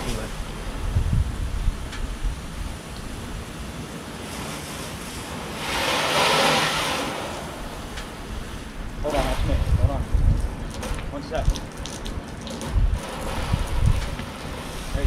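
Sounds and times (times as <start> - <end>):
hose spray hitting a car: 4.2 - 15.0.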